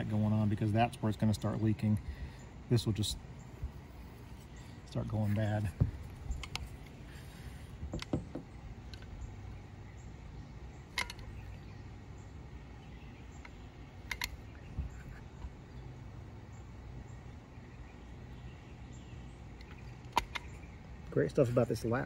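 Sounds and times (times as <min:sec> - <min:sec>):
low steady background: 0:00.0 - 0:22.0
caulking gun trigger clicks: 0:10.9 - 0:11.4, 0:13.4 - 0:14.6, 0:19.6 - 0:20.7.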